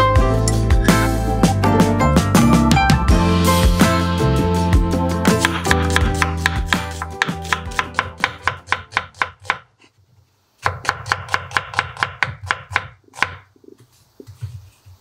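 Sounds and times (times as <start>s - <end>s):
knife chopping on wooden board: 5.2s - 9.7s, 10.6s - 13.5s.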